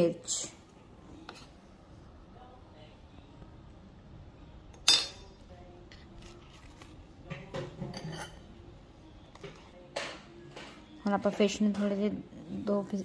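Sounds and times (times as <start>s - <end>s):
clink on ceramic plate: 7.8s - 8.4s.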